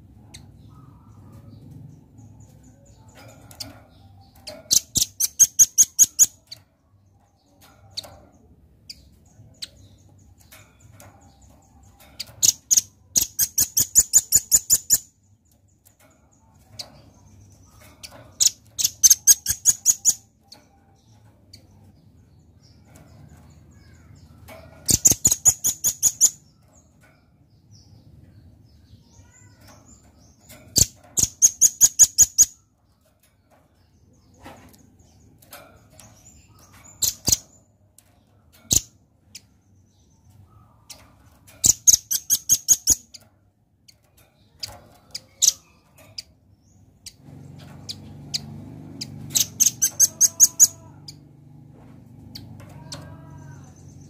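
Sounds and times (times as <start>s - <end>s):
bird calling in rapid chips: 4.7s - 6.5s, 17.6s - 20.4s, 23.6s - 26.4s, 40.4s - 43.2s, 44.6s - 51.4s.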